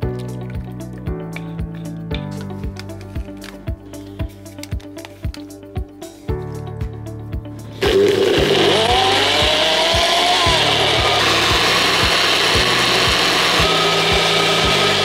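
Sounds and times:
background music with steady beat: 0:00.0 - 0:15.0
blender motor whine: 0:07.8 - 0:15.0.

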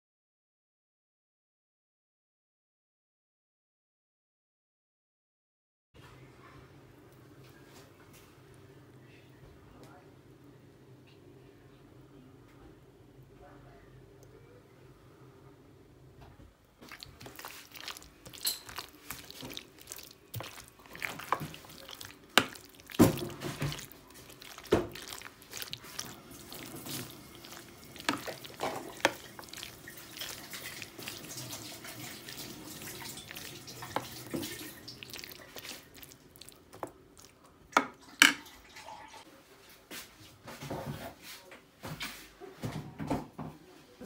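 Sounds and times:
wet squelching: 0:16.8 - 0:38.6.

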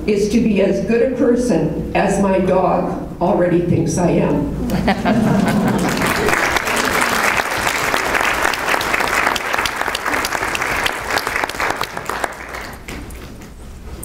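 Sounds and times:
audience applause: 0:05.2 - 0:13.4.

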